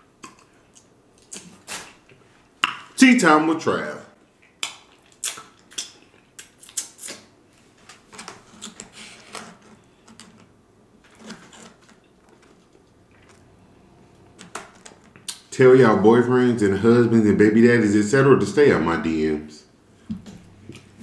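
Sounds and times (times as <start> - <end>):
chewing and lip-smacking: 0.1 - 2.2, 4.3 - 7.3.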